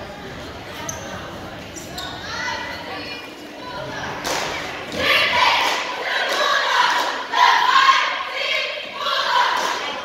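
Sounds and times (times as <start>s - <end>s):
crowd shouting and cheering: 3.7s - 10.0s.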